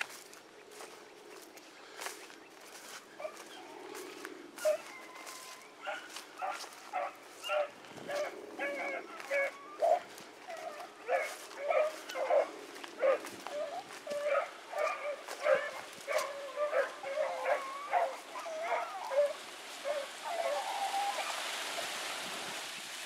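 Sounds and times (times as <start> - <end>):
dogs baying: 3.2 - 21.4.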